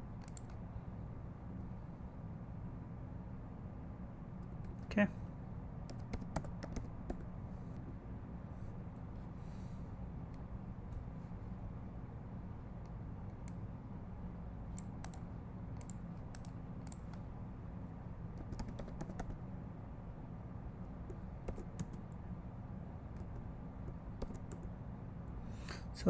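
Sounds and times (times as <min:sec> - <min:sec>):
steady low hum: 0:00.0 - 0:26.0
keyboard keystroke clicks: 0:00.2 - 0:00.6, 0:18.4 - 0:19.4.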